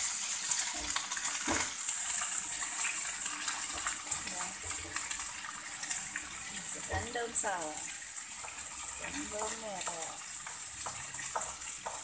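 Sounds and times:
meat sizzling in hot oil: 0:00.0 - 0:12.0.

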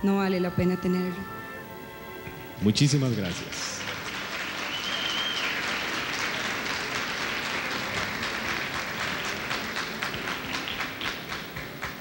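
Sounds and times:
audience applauding: 0:02.9 - 0:12.0.

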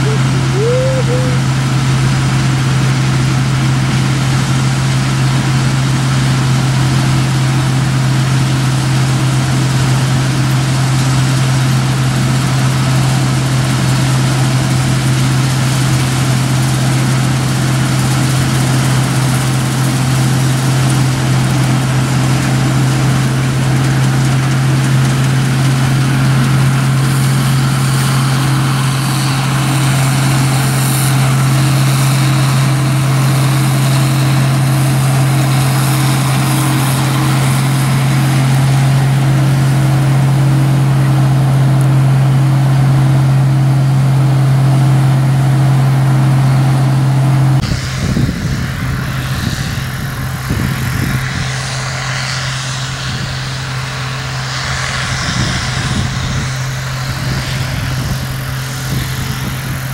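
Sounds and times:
combine harvester drone: 0:00.0 - 0:59.9
machinery hiss and rattle: 0:47.6 - 0:59.9.

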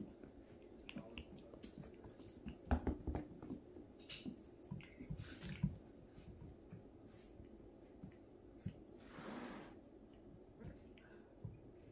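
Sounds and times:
puppy mouthing ball: 0:00.0 - 0:09.0
paws and ball knocking on tile: 0:02.4 - 0:06.6.

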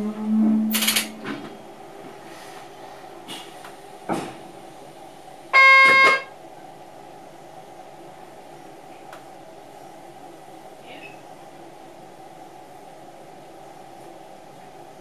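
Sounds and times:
low hum: 0:00.0 - 0:03.2
high signal tone: 0:05.6 - 0:06.3.

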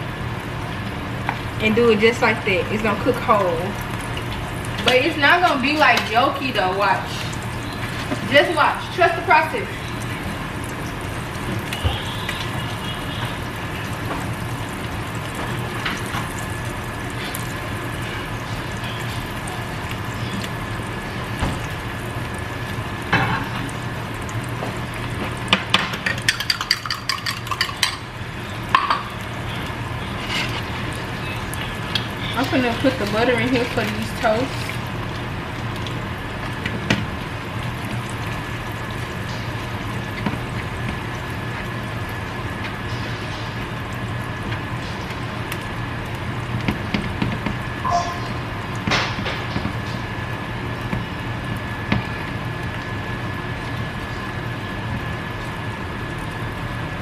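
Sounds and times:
egg sizzling in a skillet: 0:00.0 - 0:57.0
grease popping: 0:00.8 - 0:57.0.

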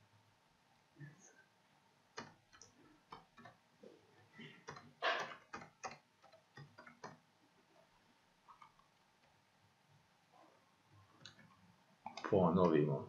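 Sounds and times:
keyboard and mouse clicks: 0:02.2 - 0:03.6, 0:04.4 - 0:07.2.

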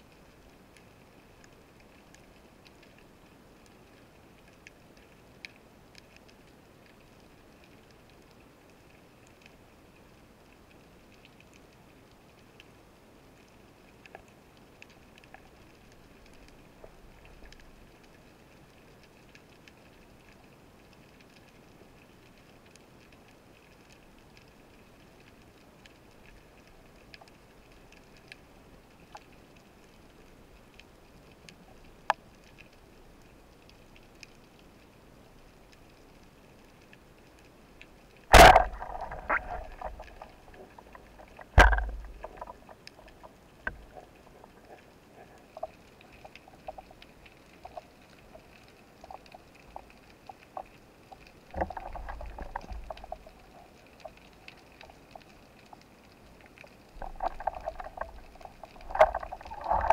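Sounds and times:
faint underwater crackle: 0:00.0 - 0:59.9
rushing sloshing water: 0:38.1 - 0:59.9.

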